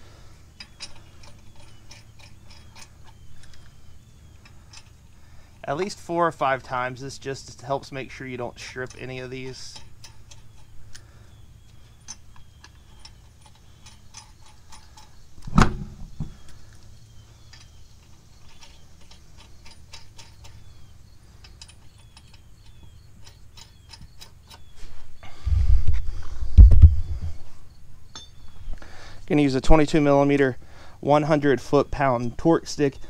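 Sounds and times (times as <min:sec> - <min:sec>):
lug nuts clicking on threads: 0:00.6 - 0:05.0, 0:05.7 - 0:24.7
thud: 0:15.5 - 0:16.4.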